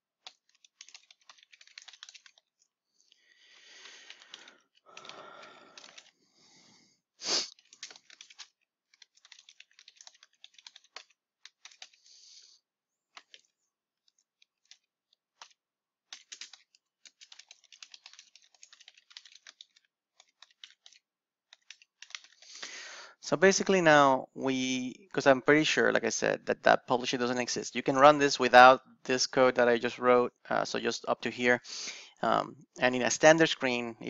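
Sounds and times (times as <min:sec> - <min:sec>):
keyboard typing: 0:00.2 - 0:02.5, 0:03.8 - 0:06.2, 0:07.5 - 0:12.1, 0:13.1 - 0:22.6.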